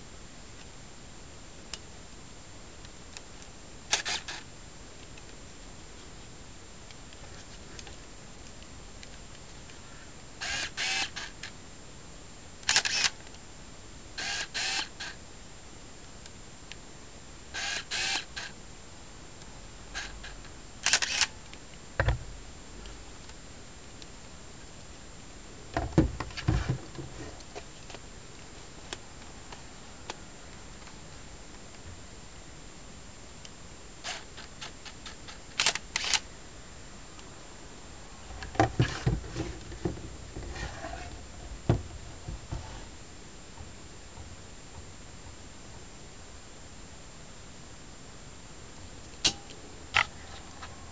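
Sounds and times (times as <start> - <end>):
camera motors whirring: 3.9 - 4.5, 10.4 - 11.4, 12.7 - 13.2, 14.2 - 15.2, 17.6 - 18.5, 20.0 - 21.3, 34.0 - 34.5, 35.6 - 36.2.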